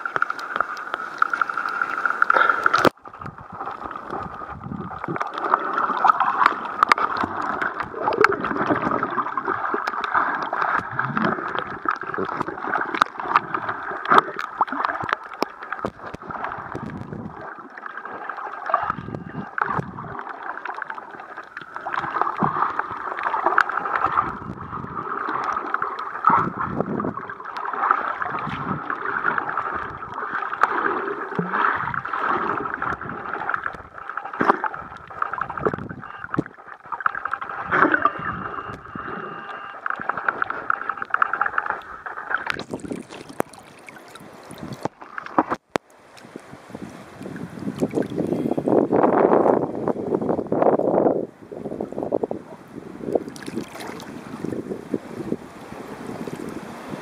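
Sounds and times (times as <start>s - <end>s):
underwater water movement: 0.0s - 57.0s.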